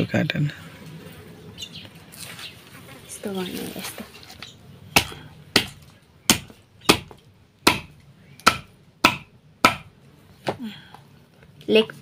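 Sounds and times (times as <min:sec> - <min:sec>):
knife chopping on wooden block: 0:05.0 - 0:09.9.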